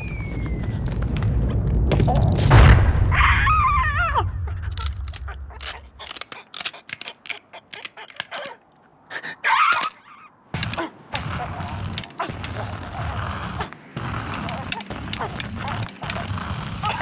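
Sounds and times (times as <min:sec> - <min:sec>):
low rumble: 0:00.0 - 0:06.0
cartoon thud: 0:02.4 - 0:04.7.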